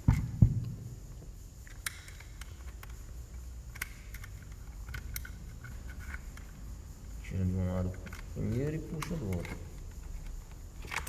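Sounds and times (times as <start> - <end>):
light clicks of small parts: 1.6 - 6.6, 7.7 - 11.0.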